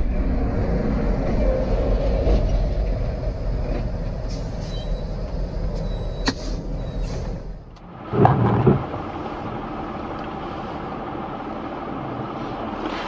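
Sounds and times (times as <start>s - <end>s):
car road noise: 0.0s - 13.0s
truck engine rumble: 0.0s - 13.0s
loud thumps: 8.1s - 9.0s.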